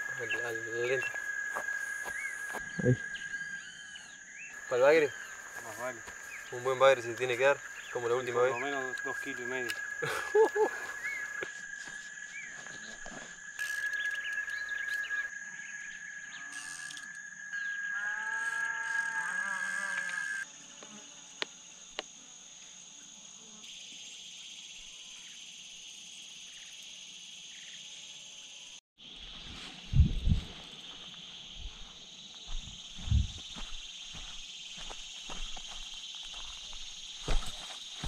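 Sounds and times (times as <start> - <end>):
frogs calling: 0.0 - 20.4
insects droning: 0.0 - 38.0.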